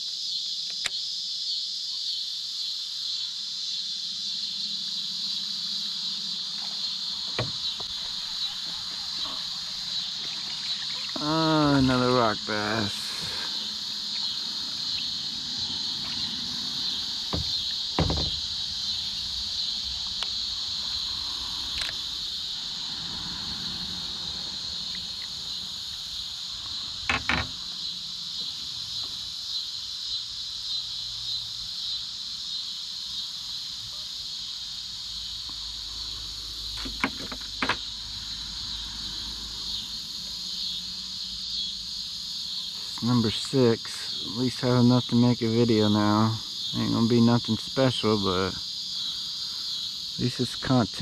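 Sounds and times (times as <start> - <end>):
insects droning: 0.0 - 51.0
short knocks: 7.3 - 8.1, 17.3 - 18.5.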